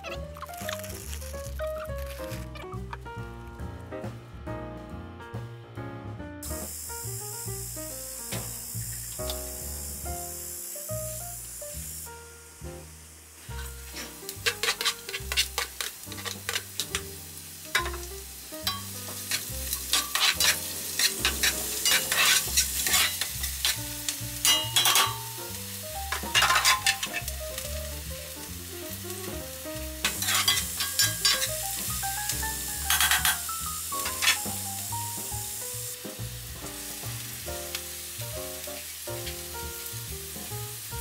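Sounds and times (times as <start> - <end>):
onion sizzling in a frying pan: 0.0 - 3.0, 6.4 - 41.0
spatula scraping a pan: 13.5 - 17.0, 18.7 - 25.3, 26.2 - 27.3, 30.0 - 31.6, 32.8 - 34.6.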